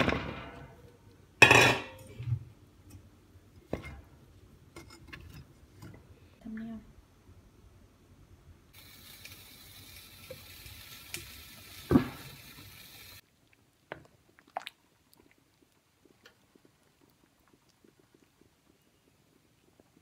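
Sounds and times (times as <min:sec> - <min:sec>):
pot hissing on stove: 0:08.7 - 0:13.2.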